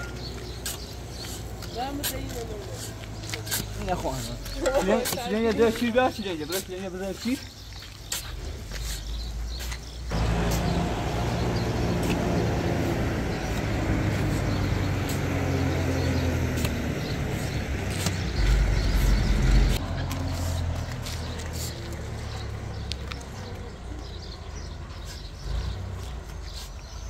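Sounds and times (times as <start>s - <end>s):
vehicle engine running: 10.1s - 24.2s.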